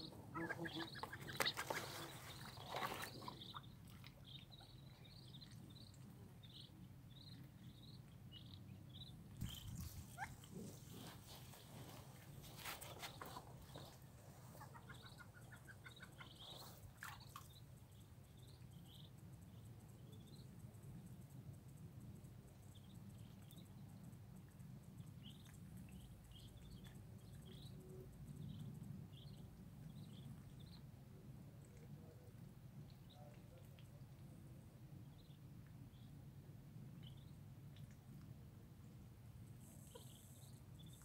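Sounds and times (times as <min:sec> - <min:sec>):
ducklings peeping: 0:00.0 - 0:11.2, 0:12.9 - 0:17.6, 0:39.8 - 0:41.0.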